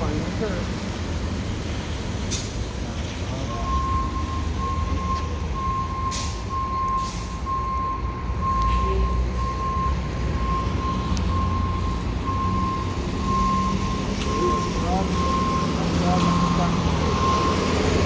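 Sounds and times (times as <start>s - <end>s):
engines idling: 0.0s - 18.0s
short air hisses: 2.3s - 2.6s
reversing alarm beeping: 3.3s - 18.0s.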